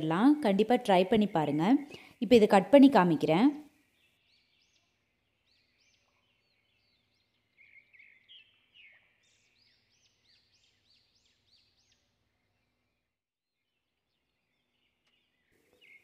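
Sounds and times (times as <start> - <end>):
faint bird chirping: 0.0 - 16.0.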